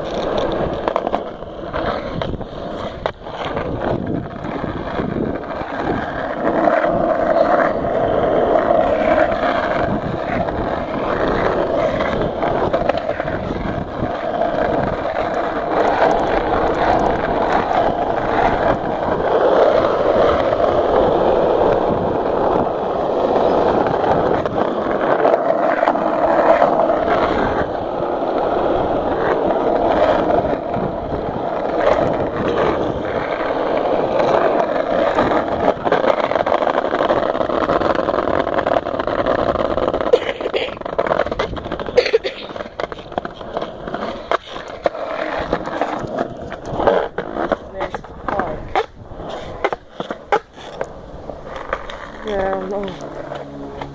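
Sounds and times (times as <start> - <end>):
skateboard wheels rolling on asphalt: 0.0 - 53.9.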